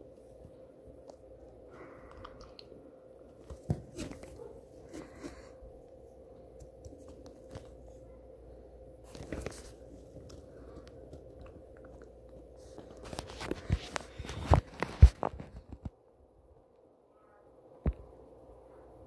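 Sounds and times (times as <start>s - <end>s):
faint steady hum: 0.0s - 19.0s
phone rustling against clothing: 3.3s - 5.6s, 6.6s - 8.1s, 9.0s - 16.0s.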